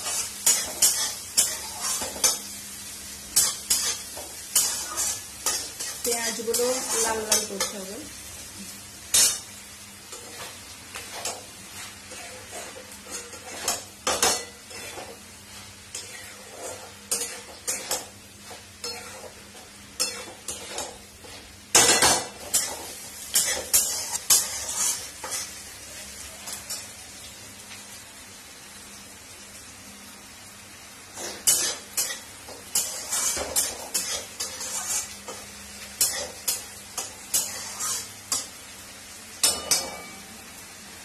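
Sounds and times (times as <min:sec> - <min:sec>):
metal spatula scraping a wok: 0:00.0 - 0:02.5, 0:03.4 - 0:07.8, 0:10.1 - 0:25.6, 0:31.2 - 0:38.5
onions sizzling in oil: 0:00.0 - 0:41.0.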